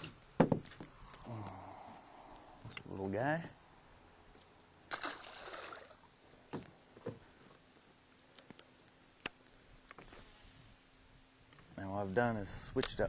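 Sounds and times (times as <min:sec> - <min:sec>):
splash in water: 0:04.9 - 0:06.0.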